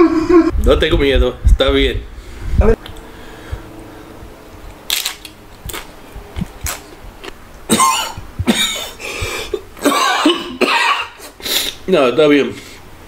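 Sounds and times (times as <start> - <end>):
man coughing: 7.7 - 11.4.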